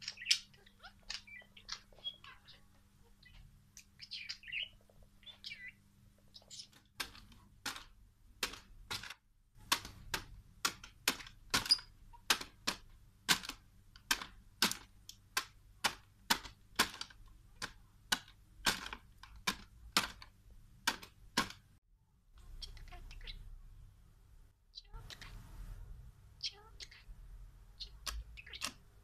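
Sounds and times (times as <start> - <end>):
bird beak pecking toys: 0.0 - 2.6, 6.4 - 21.7, 27.8 - 28.9.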